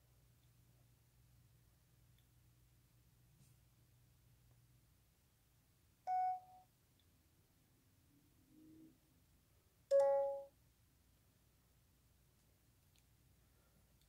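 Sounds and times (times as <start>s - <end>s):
phone electronic beeps: 6.1s - 6.6s, 9.9s - 10.5s.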